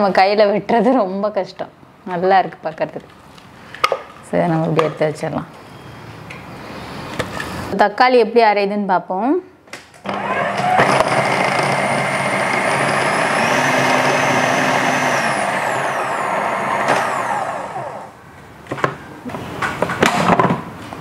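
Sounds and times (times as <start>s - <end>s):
food processor motor whirring: 10.1s - 18.2s.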